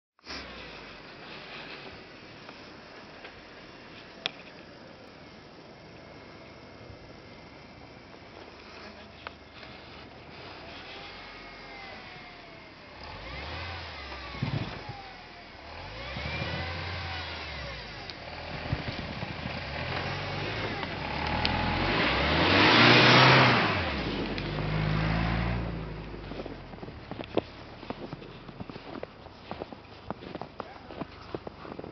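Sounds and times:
tyres churning snow: 0:00.3 - 0:05.6, 0:07.4 - 0:31.9
suv engine revving: 0:10.3 - 0:29.6.

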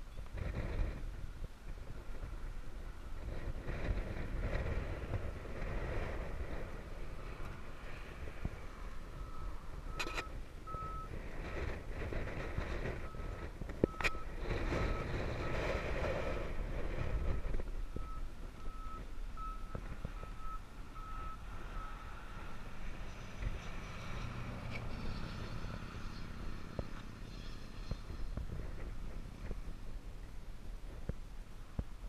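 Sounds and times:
low outdoor rumble: 0:00.0 - 0:32.0
vehicle reversing alarm beeping: 0:08.9 - 0:11.2, 0:13.0 - 0:16.4, 0:17.2 - 0:22.6.

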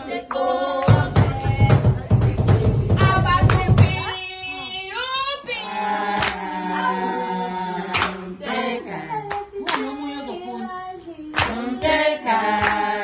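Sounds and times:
women singing together: 0:00.0 - 0:13.0
handclaps: 0:02.5 - 0:04.0, 0:06.2 - 0:06.4, 0:07.9 - 0:08.2, 0:09.2 - 0:09.9, 0:11.3 - 0:13.0.

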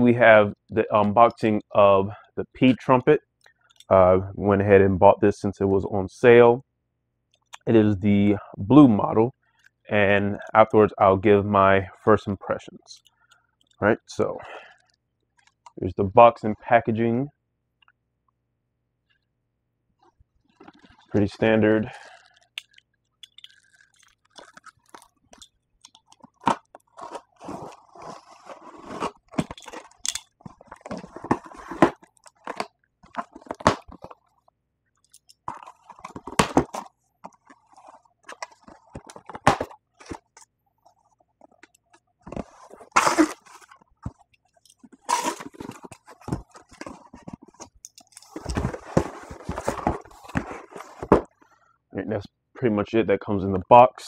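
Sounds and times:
cardboard box crunching and rustling: 0:26.9 - 0:29.5, 0:42.4 - 0:43.7, 0:48.3 - 0:51.3.

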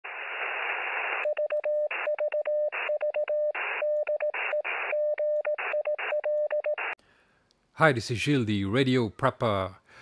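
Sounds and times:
radio static hiss: 0:00.0 - 0:02.1, 0:03.6 - 0:05.0, 0:06.8 - 0:07.0
morse code beeping tone: 0:01.2 - 0:07.0.

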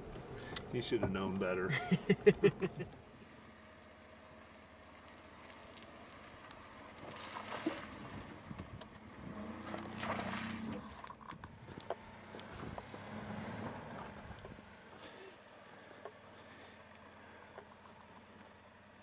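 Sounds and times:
truck engine running low: 0:00.0 - 0:19.0
tyres crunching over rocks: 0:04.9 - 0:16.9.

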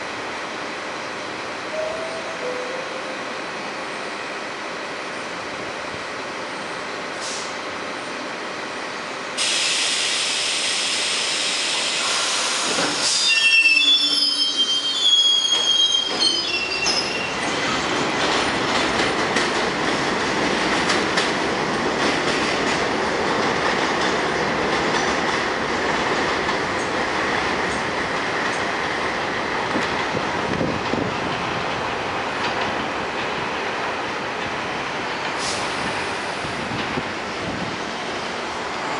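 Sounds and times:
train wheels rumbling on rails: 0:00.0 - 0:38.9
train wheels squealing: 0:11.7 - 0:17.9.

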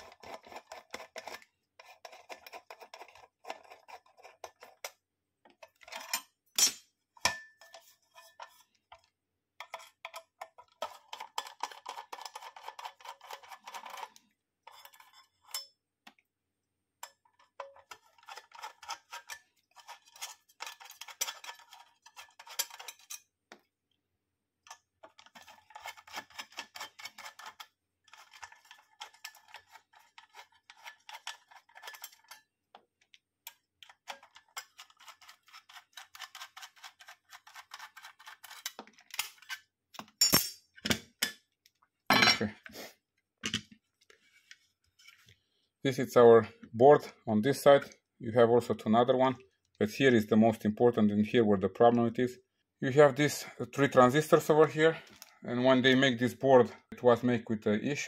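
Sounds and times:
screwdriver clicking and scraping: 0:00.0 - 0:06.7, 0:07.4 - 0:16.2, 0:17.0 - 0:23.3, 0:24.6 - 0:41.1.

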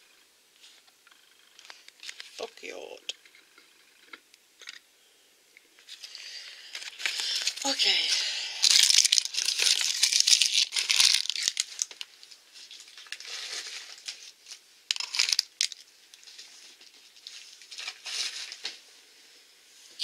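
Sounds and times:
plastic and foil wrappers crinkling: 0:01.6 - 0:03.0, 0:05.8 - 0:18.8.

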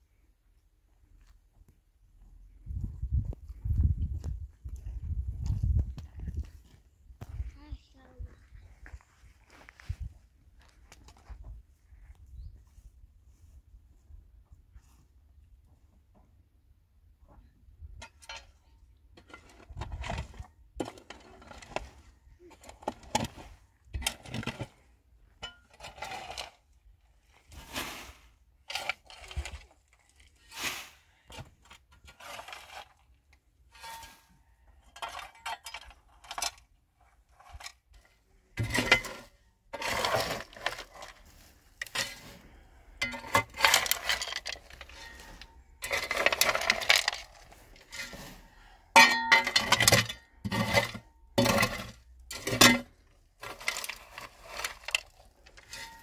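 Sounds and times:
small hard objects clinking: 0:42.9 - 0:48.2, 0:48.8 - 0:56.0.

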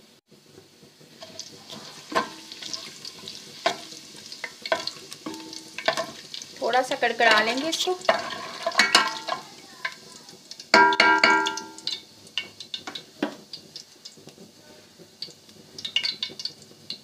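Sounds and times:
spoon stirring spices in pot: 0:01.1 - 0:10.0
spoon clanging on metal pot: 0:02.1 - 0:02.9, 0:03.6 - 0:06.2, 0:07.3 - 0:09.5, 0:10.7 - 0:13.4.

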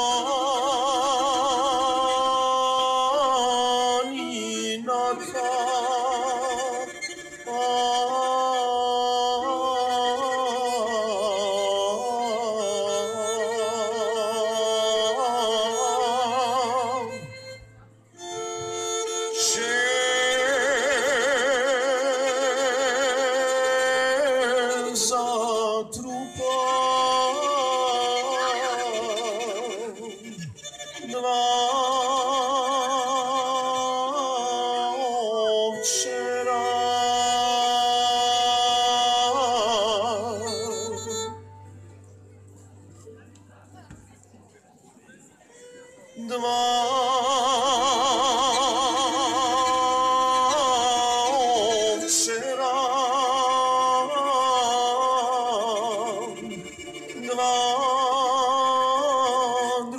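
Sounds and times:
bowed string instrument: 0:00.0 - 0:59.9
accordions playing melody: 0:56.1 - 0:57.7.

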